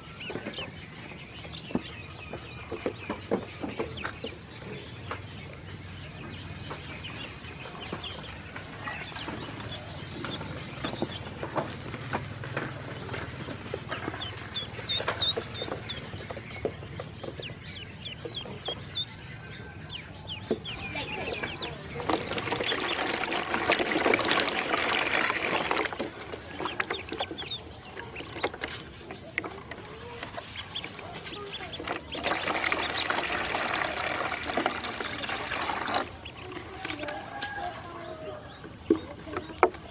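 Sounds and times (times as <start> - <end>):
ducklings peeping: 0.0 - 39.9
water splashing into plastic tub: 21.2 - 37.4.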